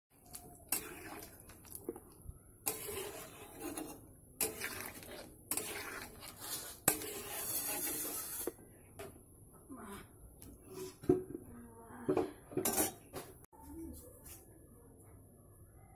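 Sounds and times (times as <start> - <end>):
curry bubbling in a pan: 0.1 - 8.6.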